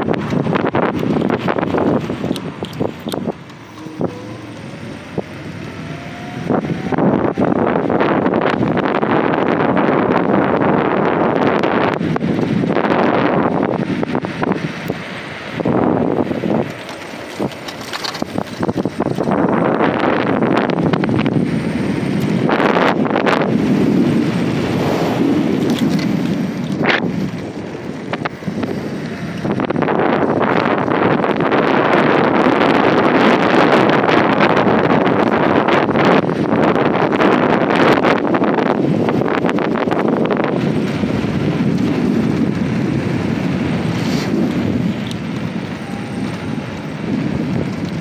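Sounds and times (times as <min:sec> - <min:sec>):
wind buffeting microphone: 0:00.0 - 0:48.0.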